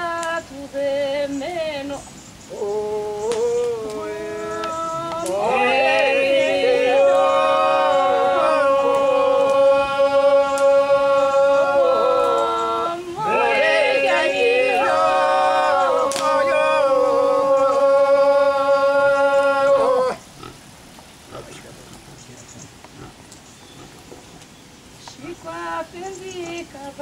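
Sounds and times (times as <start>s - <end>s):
elderly man singing unaccompanied: 0.0s - 20.2s, 25.0s - 27.0s.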